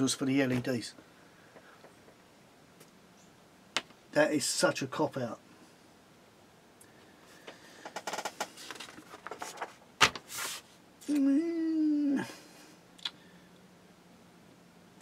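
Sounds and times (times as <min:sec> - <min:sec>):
paper crackling and tapping: 0:07.5 - 0:10.6
person humming: 0:11.0 - 0:12.6.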